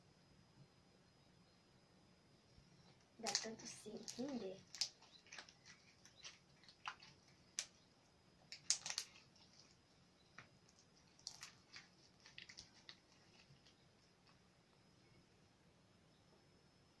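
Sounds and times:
slime squeezed by hand: 8.5 - 9.8.

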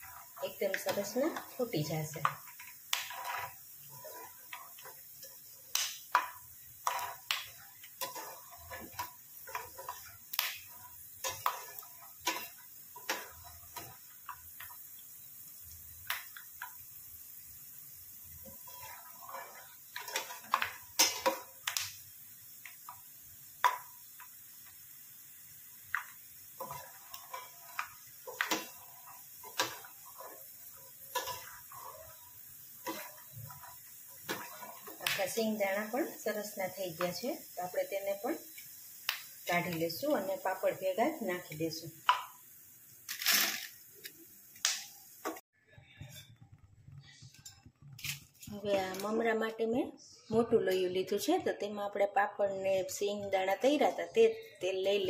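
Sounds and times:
metal spatula scraping a pan: 0.0 - 14.8, 18.2 - 21.8, 25.9 - 38.5, 43.1 - 43.7
oil sizzling: 0.0 - 55.0.

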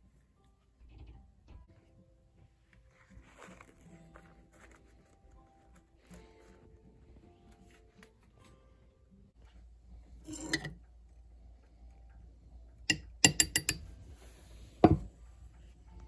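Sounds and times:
knock of object set down: 14.8 - 15.1.

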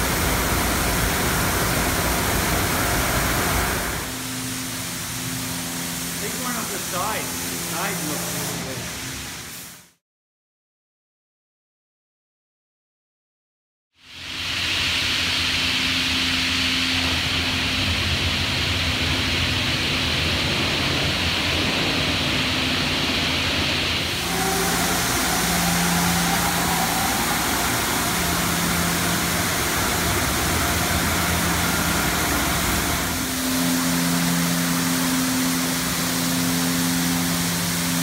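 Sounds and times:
pump humming: 0.0 - 8.7, 14.3 - 38.0
high-pressure spray jets hissing: 3.6 - 9.9, 23.9 - 38.0.

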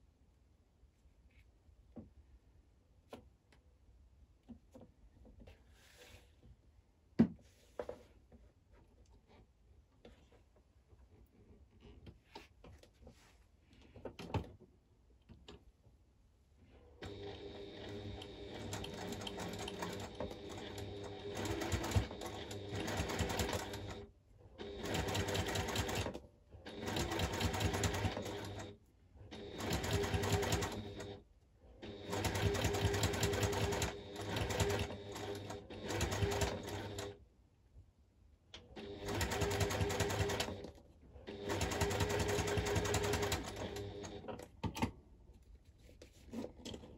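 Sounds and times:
electric sewing machine stitching: 17.0 - 31.2, 31.8 - 37.2, 38.8 - 40.7, 41.3 - 44.3.

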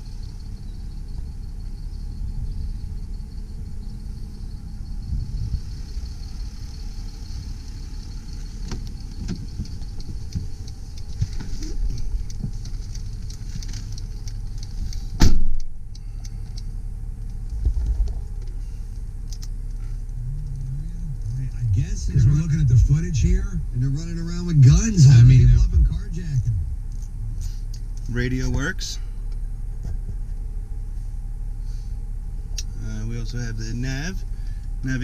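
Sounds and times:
diesel engine idling: 0.0 - 35.0
loud sharp thump: 15.2 - 15.6.

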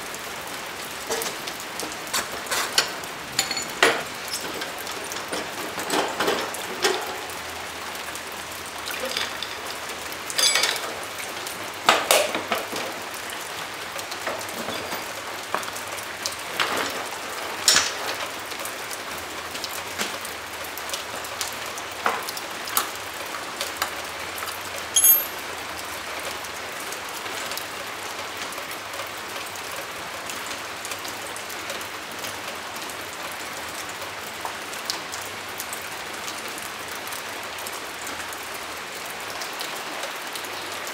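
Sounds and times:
ringing metallic ping: 25.0 - 25.4.

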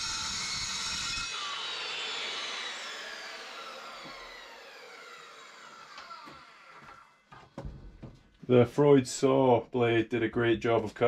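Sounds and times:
circular saw spinning down: 0.0 - 7.2.

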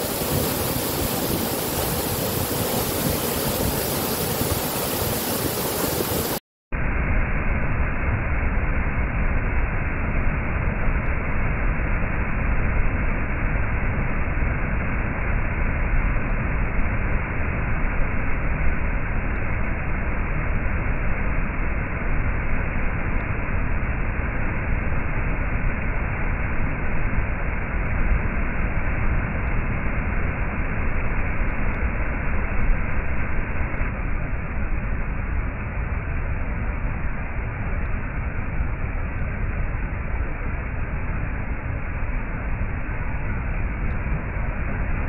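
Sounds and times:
waterfall rushing: 0.0 - 6.4.

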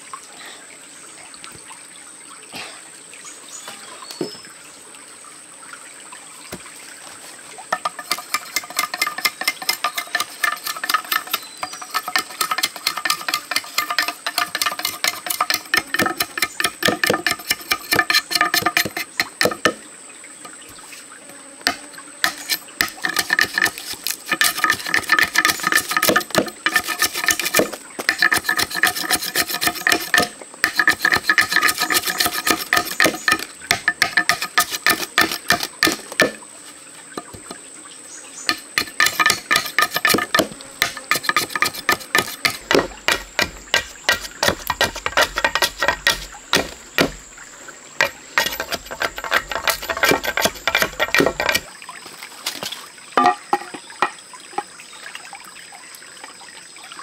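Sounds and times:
stream trickling faintly: 0.0 - 57.0
knife scraping bamboo: 7.7 - 19.8, 21.6 - 36.4, 37.2 - 37.6, 38.4 - 47.4, 48.0 - 51.7.

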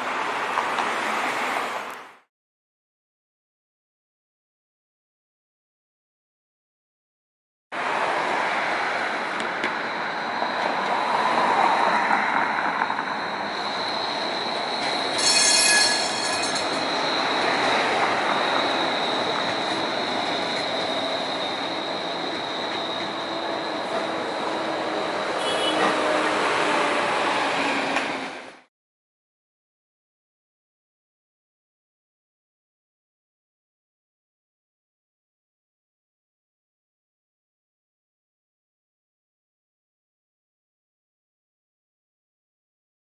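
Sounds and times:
tram running on rails: 0.0 - 2.2, 7.8 - 28.7
high whine: 12.4 - 25.7
loud high-pitched tone: 13.5 - 22.7.

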